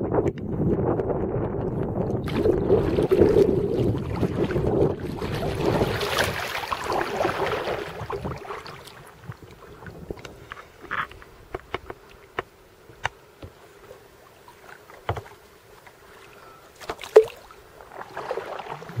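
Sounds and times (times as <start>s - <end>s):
wind on microphone: 0.0s - 11.9s
water rushing and splashing: 2.2s - 10.8s, 13.6s - 19.0s.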